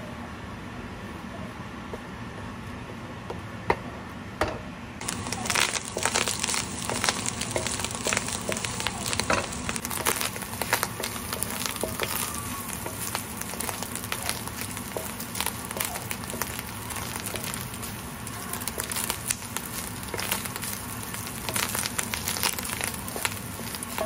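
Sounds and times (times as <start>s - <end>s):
meat sizzling in a pan: 5.0s - 24.0s.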